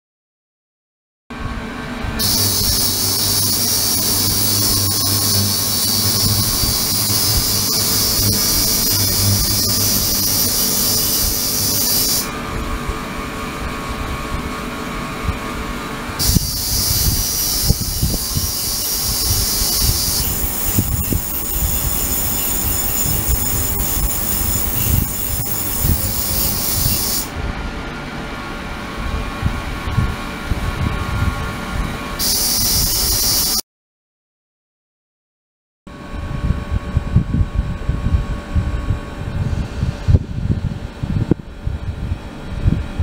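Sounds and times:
low electrical hum: 1.4s - 32.2s
ultrasonic cleaner hiss: 2.2s - 12.3s.

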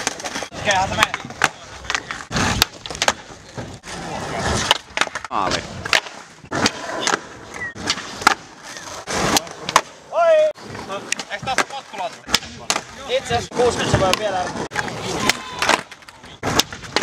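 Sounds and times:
skateboard clacks and landings: 0.0s - 10.0s, 13.8s - 17.0s
skateboard wheels rolling: 0.0s - 17.0s.

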